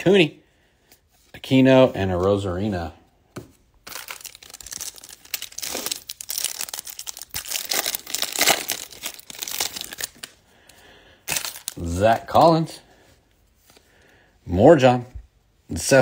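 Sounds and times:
foil wrapper tearing and crinkling: 3.8s - 10.4s, 11.3s - 12.0s.

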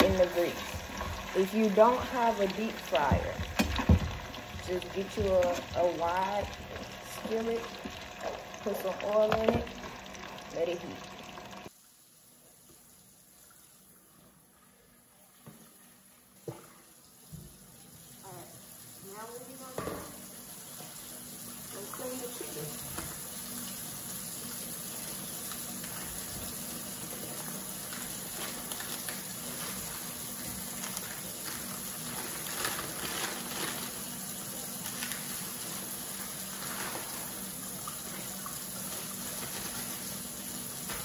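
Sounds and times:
tap running into sink: 0.0s - 5.8s, 9.2s - 10.0s, 22.8s - 23.3s
plastic rustles: 27.9s - 30.1s, 30.8s - 34.1s, 34.7s - 37.4s, 38.9s - 40.1s.

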